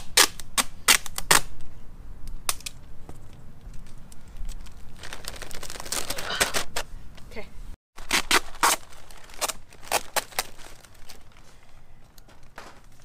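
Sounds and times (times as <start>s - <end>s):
plastic bag and newspaper crinkling: 4.3s - 6.8s, 8.0s - 13.0s.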